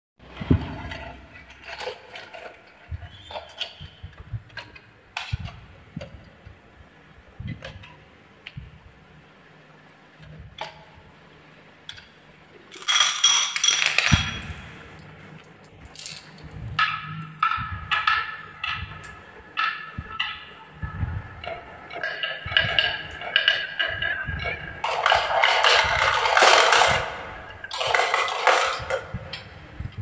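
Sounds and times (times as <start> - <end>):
glass marbles clinking: 12.7 - 14.6.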